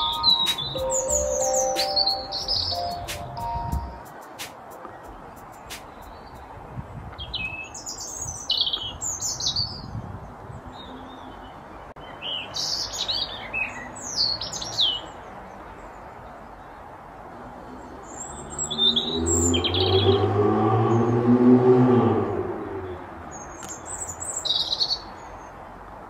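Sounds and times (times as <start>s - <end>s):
robin singing: 0.0s - 6.4s.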